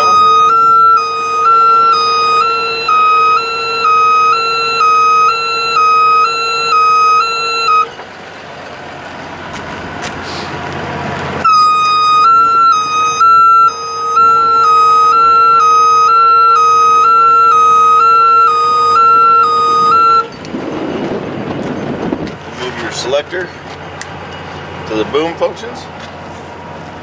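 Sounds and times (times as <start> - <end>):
two-tone warning alarm: 0.0 - 8.0, 11.4 - 20.4
steady hum: 11.4 - 22.2.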